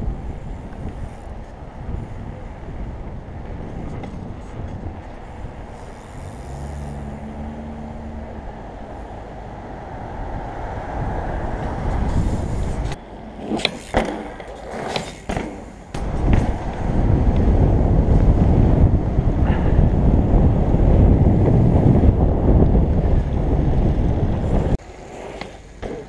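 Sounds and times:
wind on microphone: 0.0s - 13.0s, 15.9s - 24.8s
low hum: 0.0s - 13.6s
bicycle tyres rolling on tarmac: 0.0s - 26.0s
bike clacking and rattling on landing: 12.1s - 17.6s.

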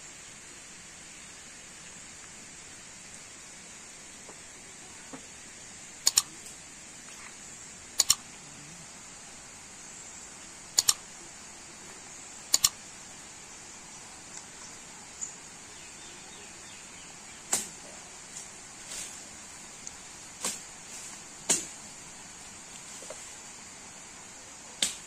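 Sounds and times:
steady high-pitched hiss: 0.0s - 25.0s
computer mouse double clicks: 6.0s - 6.3s, 8.0s - 8.2s, 10.8s - 11.0s, 12.5s - 12.8s.

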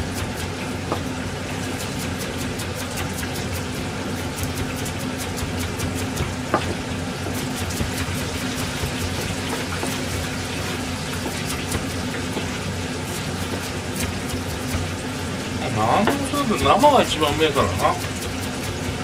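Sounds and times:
oil sizzling: 0.1s - 19.0s
knife chopping on plastic board: 11.2s - 12.5s.

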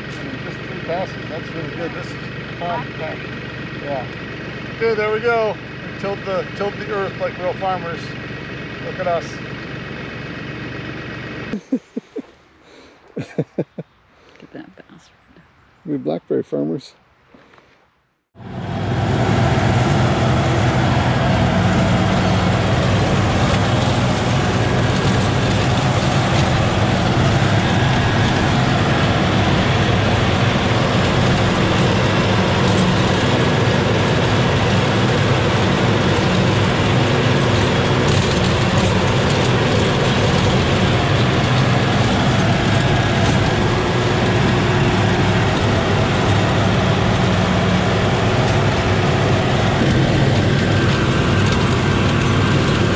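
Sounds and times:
tractor diesel engine running: 0.0s - 15.0s, 18.4s - 52.9s
rototiller churning soil: 18.7s - 52.9s.

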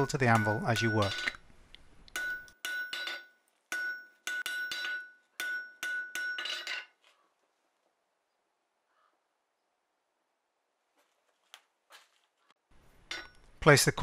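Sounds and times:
hammer striking hot metal on anvil: 0.0s - 1.4s, 2.1s - 6.9s.

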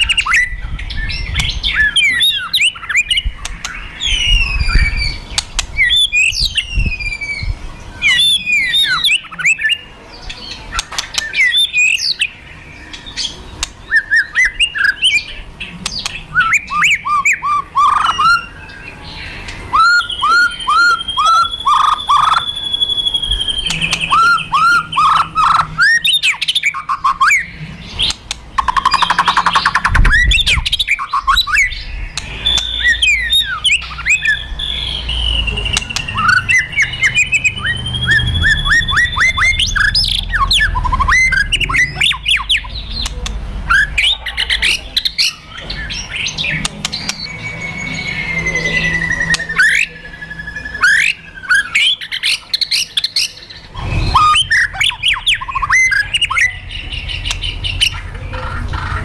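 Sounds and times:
songbird whistling calls: 0.0s - 58.9s
harsh rattling bird call: 1.1s - 43.1s.

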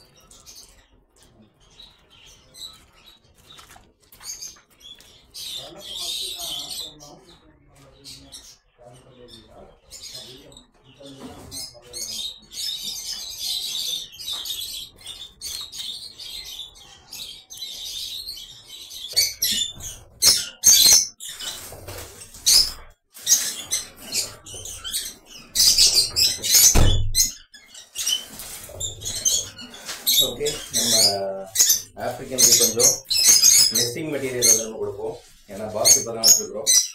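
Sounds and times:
birds chattering with shrill chirps: 0.0s - 36.9s
dull thump: 26.7s - 27.2s.

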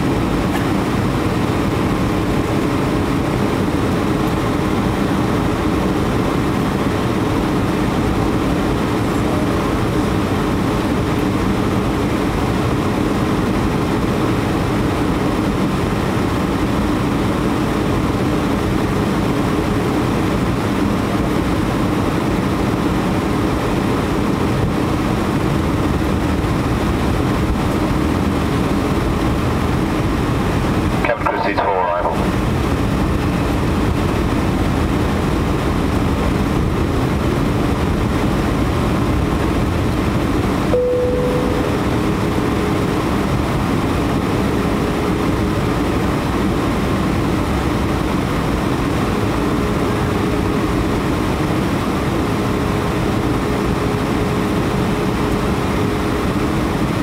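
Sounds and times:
jet engine drone: 0.0s - 57.0s
rushing airflow in cabin: 0.0s - 57.0s
faint steady hum: 25.8s - 57.0s.

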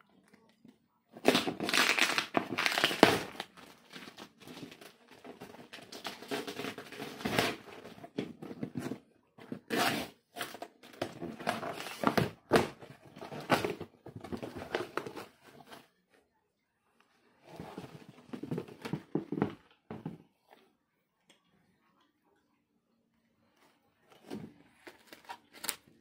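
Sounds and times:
tape tearing: 1.2s - 4.9s
packing material crinkling: 1.2s - 7.8s, 24.8s - 26.0s.

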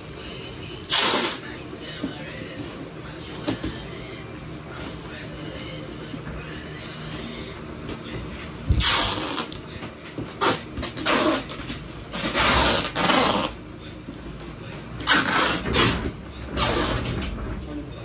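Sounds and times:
packing tape screeching off roll: 0.8s - 1.5s, 8.8s - 9.6s, 10.4s - 13.6s, 15.0s - 16.0s, 16.6s - 17.1s.

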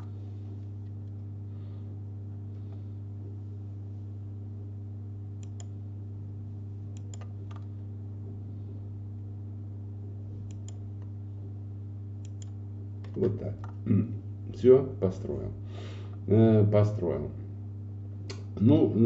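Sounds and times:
steady low hum: 0.0s - 19.0s
computer mouse clicks: 5.4s - 5.8s, 6.9s - 7.7s, 10.4s - 11.1s, 12.2s - 13.8s.

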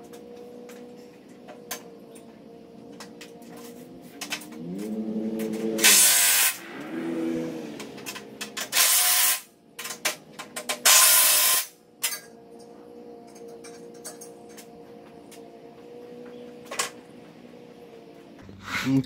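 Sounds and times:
harsh bursts of power driver: 5.8s - 6.7s, 8.7s - 9.5s, 10.8s - 11.8s.

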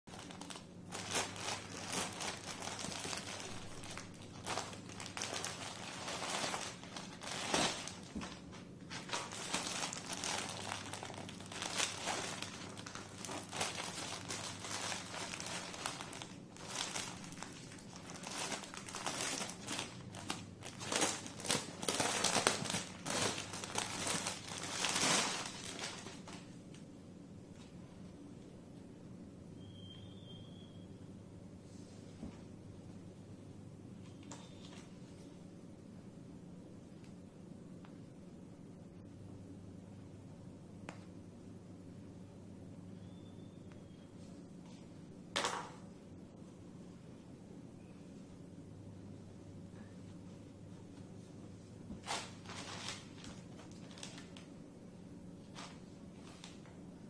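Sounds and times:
plastic wrapping crinkling: 0.1s - 26.6s, 51.9s - 54.5s.

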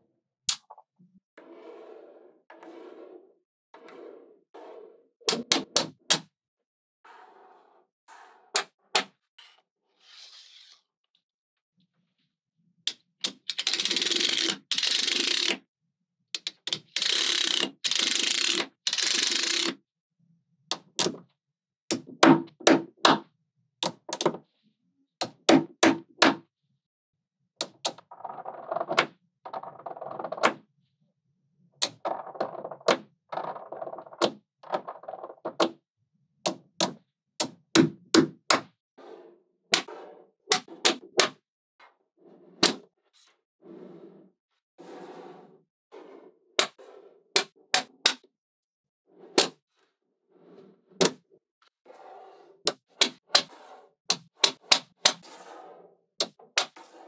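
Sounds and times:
magnetic balls clicking together: 13.2s - 15.6s.

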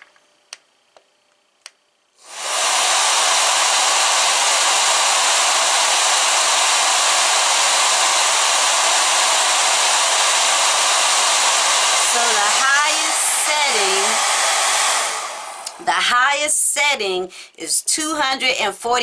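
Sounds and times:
hair dryer blowing air: 2.2s - 16.5s.

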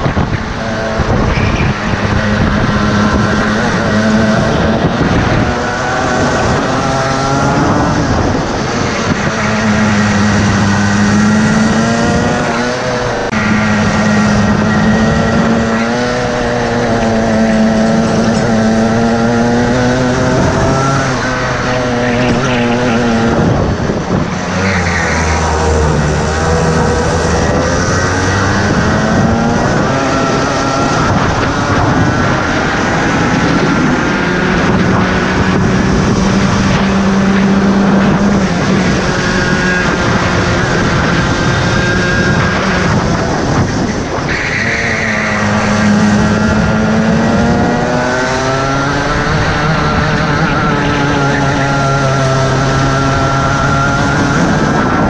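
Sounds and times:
kart engine running hard: 0.0s - 55.0s
wind rushing over microphone: 0.0s - 55.0s.

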